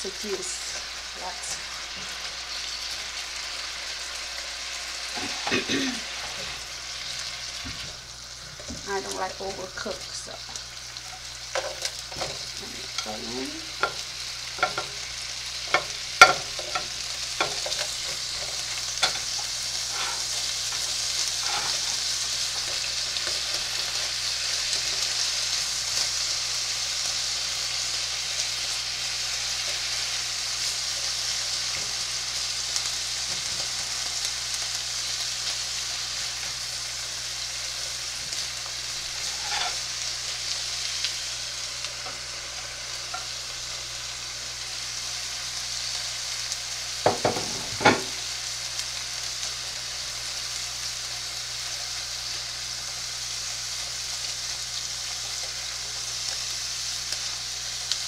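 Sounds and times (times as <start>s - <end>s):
meat sizzling in a frying pan: 0.0s - 58.0s
spatula knocking on pan: 47.0s - 48.1s.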